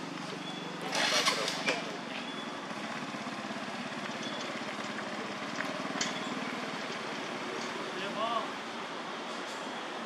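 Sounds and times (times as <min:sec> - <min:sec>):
small engine idling: 0:00.0 - 0:07.6.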